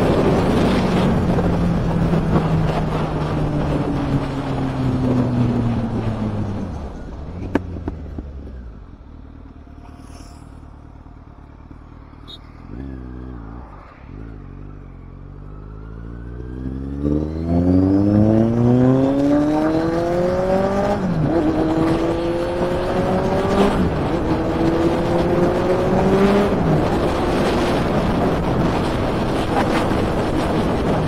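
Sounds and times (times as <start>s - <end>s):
wind noise: 0.0s - 8.7s, 9.7s - 31.0s
motorcycle engine accelerating hard: 0.0s - 31.0s.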